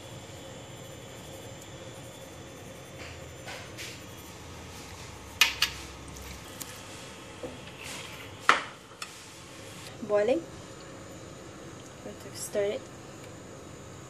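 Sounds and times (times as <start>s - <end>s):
hands mixing raw chicken: 3.8s - 7.1s.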